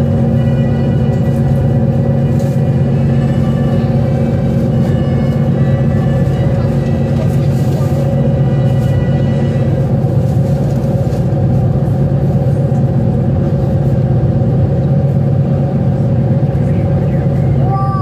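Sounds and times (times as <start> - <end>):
ferry diesel engines droning: 0.0 - 18.0.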